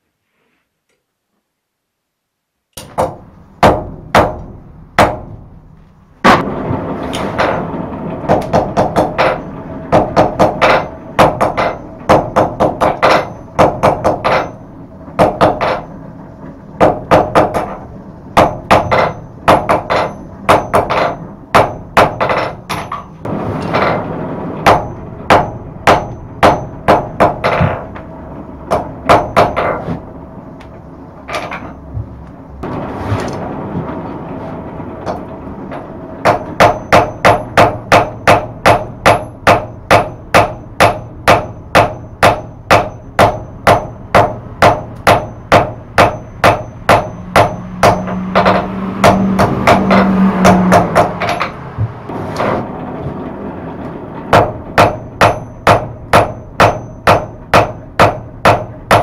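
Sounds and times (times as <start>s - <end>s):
steady background noise: 0.0s - 59.0s
hammer striking hot steel on anvil: 2.8s - 5.3s, 8.3s - 15.9s, 16.8s - 24.0s, 24.6s - 28.0s, 28.7s - 29.9s, 36.2s - 51.6s, 54.3s - 59.0s.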